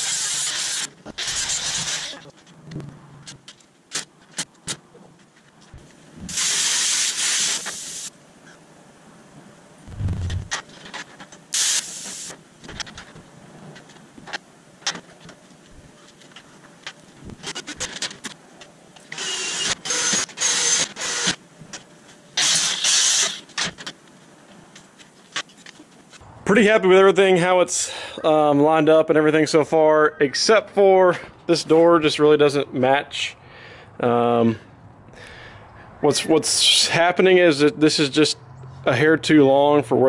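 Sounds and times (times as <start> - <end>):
hissing bursts: 0.0 - 2.3, 6.3 - 8.1, 11.5 - 12.4.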